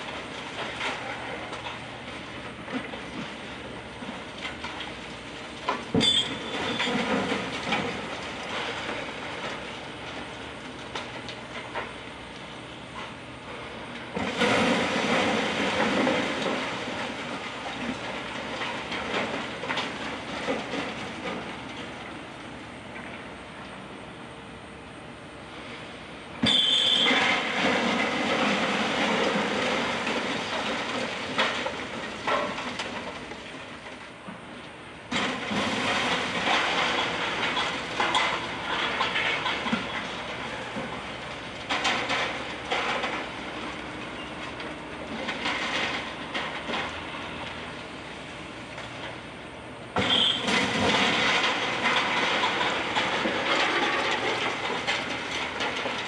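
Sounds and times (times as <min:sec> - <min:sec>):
rubble crashing down: 0:05.8 - 0:10.3, 0:13.6 - 0:22.0, 0:26.4 - 0:33.9, 0:35.1 - 0:47.7, 0:49.9 - 0:56.0.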